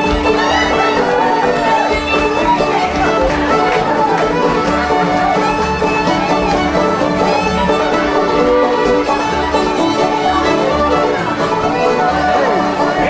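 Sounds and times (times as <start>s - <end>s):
fiddle melody: 0.0s - 13.0s
strummed acoustic guitars: 0.0s - 13.0s.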